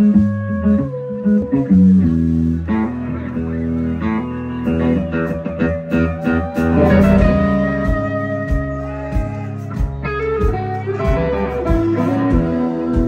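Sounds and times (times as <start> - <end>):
bass guitar: 0.0 - 13.0
electric guitars: 0.0 - 13.0
pedal steel guitar sliding notes: 0.0 - 13.0
drum hits: 6.8 - 12.6.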